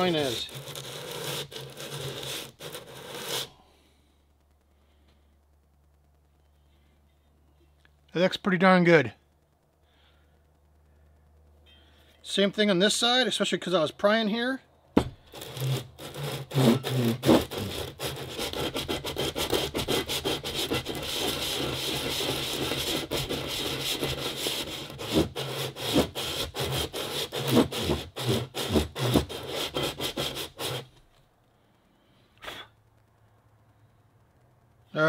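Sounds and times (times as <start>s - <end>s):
metal rasping on sandpaper: 0.0s - 3.6s, 15.3s - 30.9s.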